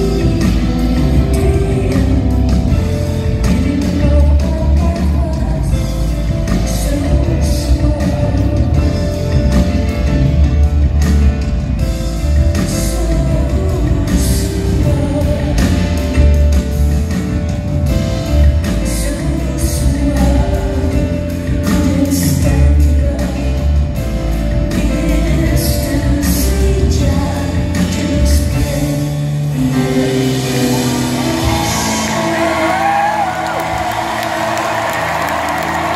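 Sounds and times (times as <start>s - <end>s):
woman singing: 0.0s - 9.8s, 12.5s - 17.0s, 18.6s - 34.8s
live band music: 0.0s - 35.9s
audience cheering and whooping: 30.7s - 35.9s.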